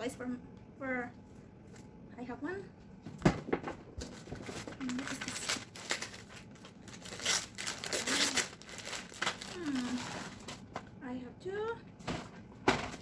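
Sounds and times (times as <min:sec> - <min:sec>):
gift wrap paper rustling: 0:04.0 - 0:10.7.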